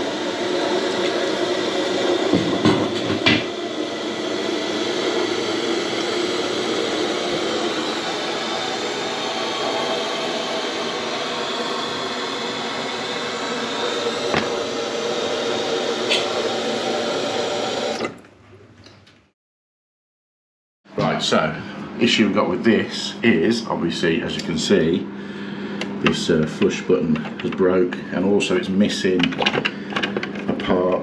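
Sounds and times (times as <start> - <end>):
toilet cistern refilling hiss: 0.0 - 18.1.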